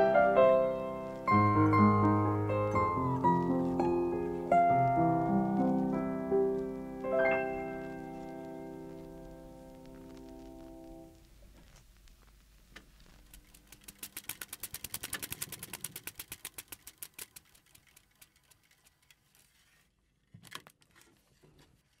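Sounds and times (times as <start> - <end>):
rapid mechanical clicking: 13.2 - 19.4.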